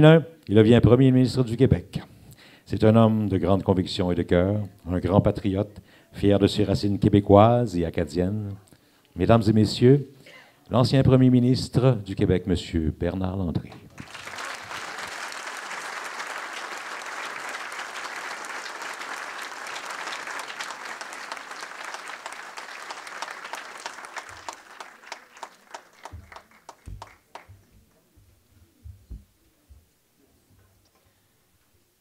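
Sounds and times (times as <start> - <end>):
audience applauding: 13.9 - 27.6.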